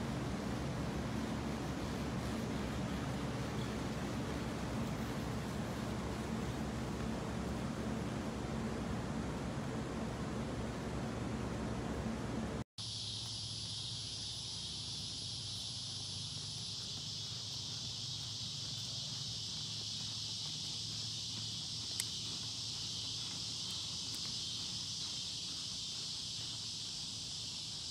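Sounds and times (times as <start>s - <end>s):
low hum: 0.0s - 12.6s
insects chorus: 0.0s - 27.9s.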